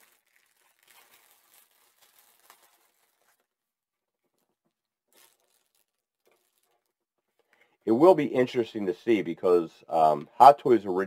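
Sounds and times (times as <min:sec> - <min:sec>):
plastic packaging crinkling: 0:00.0 - 0:03.6, 0:04.2 - 0:07.0.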